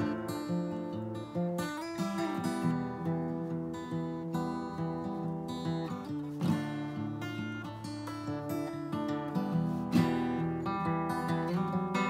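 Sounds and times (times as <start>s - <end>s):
acoustic guitar strumming: 0.0s - 12.0s.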